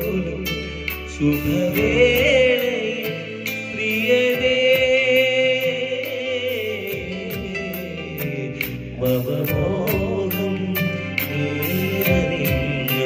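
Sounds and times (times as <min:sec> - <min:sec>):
man singing into a microphone: 0:00.0 - 0:13.0
music with steady beat: 0:00.0 - 0:13.0.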